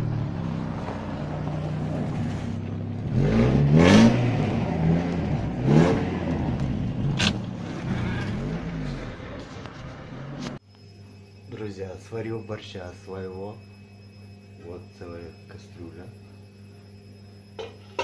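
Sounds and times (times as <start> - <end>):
car engine revving: 0.0 - 10.6.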